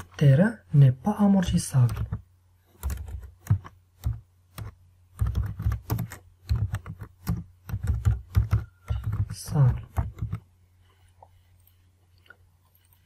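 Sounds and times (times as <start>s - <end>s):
computer keyboard typing: 1.7s - 10.4s.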